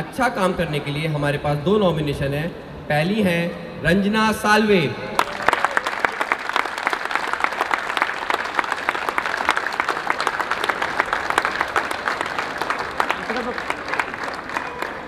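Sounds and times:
crowd applause: 0:05.2 - 0:15.0.

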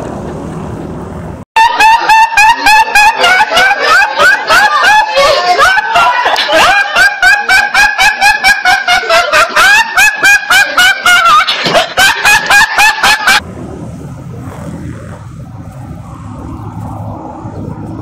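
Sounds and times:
young man laughing: 0:01.7 - 0:13.4.

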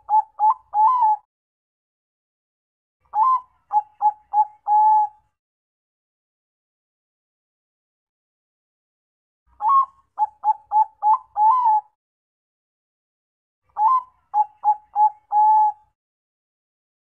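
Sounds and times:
dove cooing: 0:00.0 - 0:01.3, 0:03.1 - 0:05.2, 0:09.6 - 0:12.0, 0:13.8 - 0:15.9.

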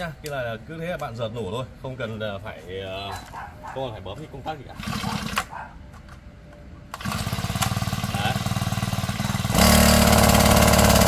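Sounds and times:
pull start cord: 0:04.8 - 0:05.5, 0:06.9 - 0:08.4
small petrol engine running: 0:04.8 - 0:05.5, 0:07.0 - 0:11.0.

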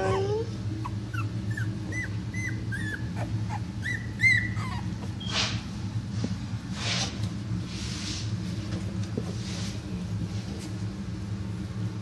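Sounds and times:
puppies whimpering: 0:00.0 - 0:05.2.

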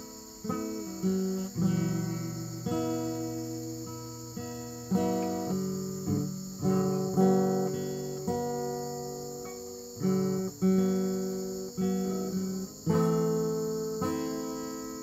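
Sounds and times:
plucked string music: 0:00.0 - 0:15.0.

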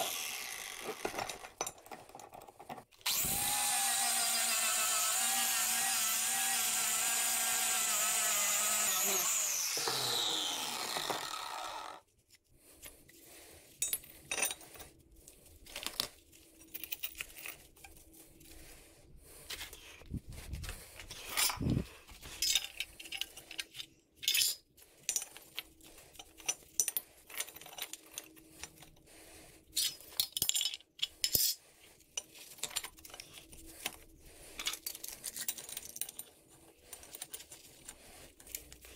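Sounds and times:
angle grinder spinning down: 0:00.0 - 0:01.4, 0:03.0 - 0:12.0
steel pieces clinking on concrete: 0:00.9 - 0:02.8, 0:13.8 - 0:14.8, 0:22.3 - 0:29.0, 0:29.7 - 0:31.6, 0:34.6 - 0:36.4.

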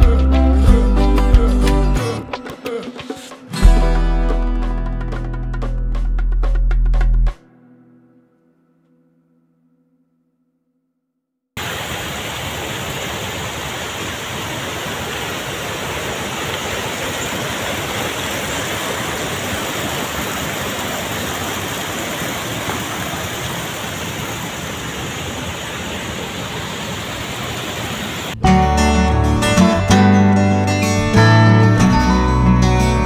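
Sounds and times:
rushing water: 0:11.6 - 0:29.1.

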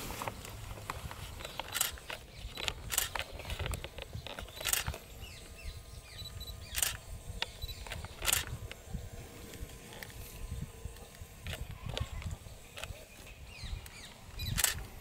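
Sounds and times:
sharp rustling clicks: 0:00.2 - 0:05.6, 0:06.6 - 0:10.2, 0:10.9 - 0:15.0.

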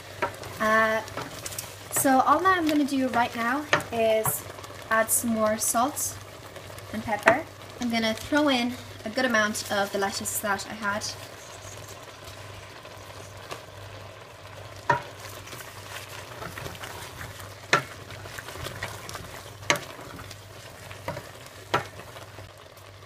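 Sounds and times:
faint steady sizzle: 0:00.0 - 0:23.0
spoon stirring in a pot: 0:00.1 - 0:02.3, 0:03.6 - 0:04.8, 0:14.8 - 0:22.4.

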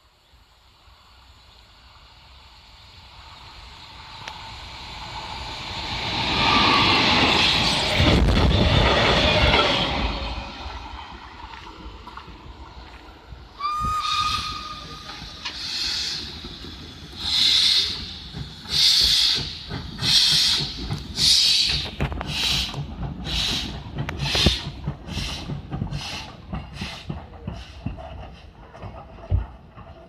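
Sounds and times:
steam locomotive exhaust chuffs: 0:11.5 - 0:30.0
steam whistle blast: 0:13.6 - 0:15.0.

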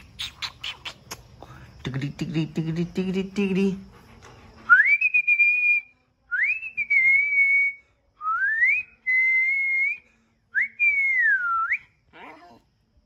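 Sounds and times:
person whistling: 0:04.7 - 0:11.9.

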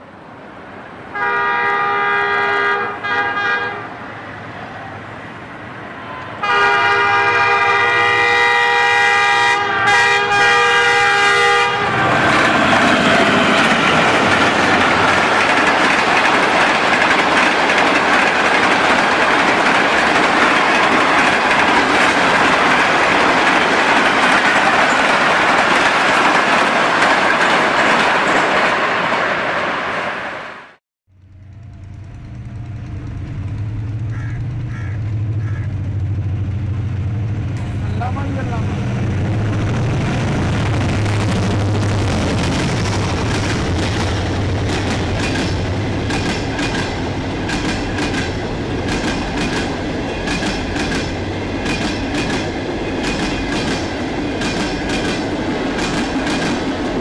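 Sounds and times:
train coaches rushing past: 0:00.0 - 0:57.0
train horn blasts: 0:01.1 - 0:03.9, 0:06.4 - 0:12.4.

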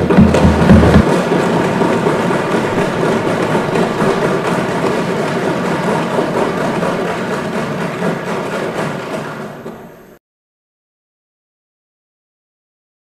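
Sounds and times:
crowd applauding: 0:00.0 - 0:09.9.

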